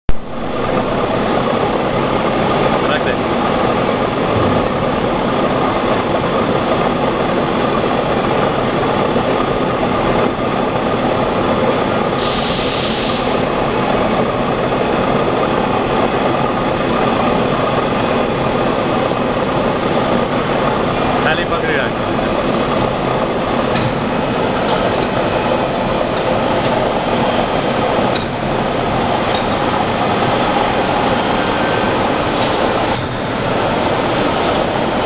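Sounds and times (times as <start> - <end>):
ice candy machine humming: 0.3 - 35.0.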